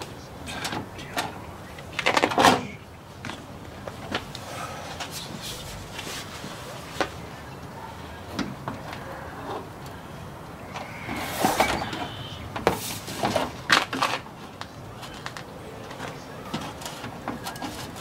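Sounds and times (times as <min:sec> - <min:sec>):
scrapes and knocks of parts: 0:10.7 - 0:18.0.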